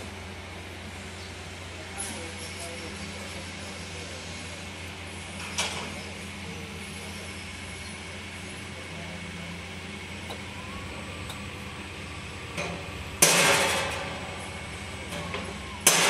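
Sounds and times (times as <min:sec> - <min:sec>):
machine motor humming: 0:08.5 - 0:16.0
loud ringing knocks: 0:12.6 - 0:14.0.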